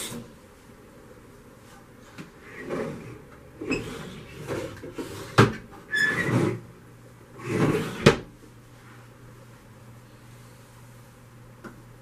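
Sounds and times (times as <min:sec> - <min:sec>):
wooden drawer sliding: 0:02.5 - 0:06.7, 0:07.4 - 0:08.3.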